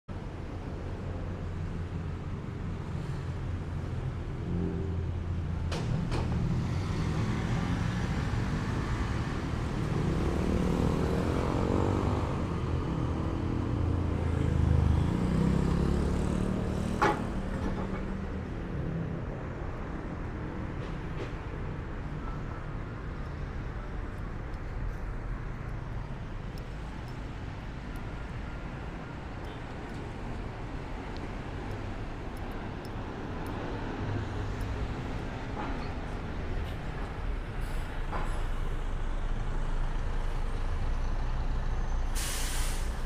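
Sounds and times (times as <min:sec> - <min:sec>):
vehicle engines running: 0:00.2 - 0:43.0
vehicle passing: 0:06.5 - 0:17.5.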